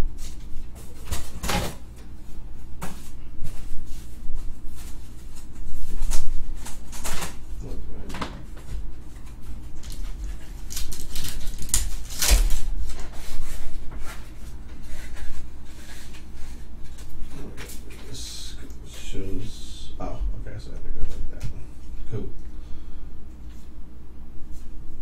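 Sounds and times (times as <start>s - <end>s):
foil wrapper crinkling and tearing: 9.7s - 14.2s.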